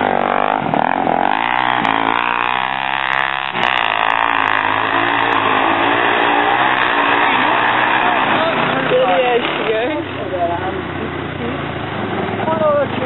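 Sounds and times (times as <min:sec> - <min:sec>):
dirt bike engine passing: 0:00.0 - 0:13.0
quad bike engine revving: 0:00.0 - 0:13.0.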